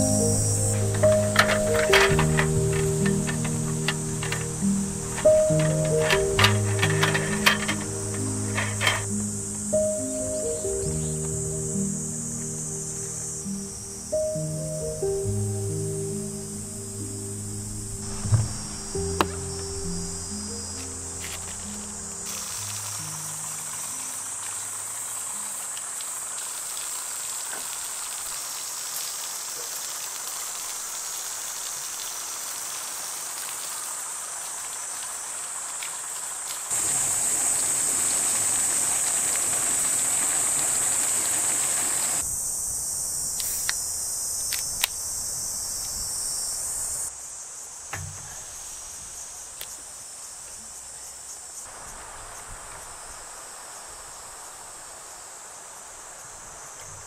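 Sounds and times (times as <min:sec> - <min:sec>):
insects chirring: 0:00.0 - 0:57.0
light knocks: 0:18.0 - 0:19.6, 0:47.9 - 0:48.5
water running from a tap: 0:22.3 - 0:42.2.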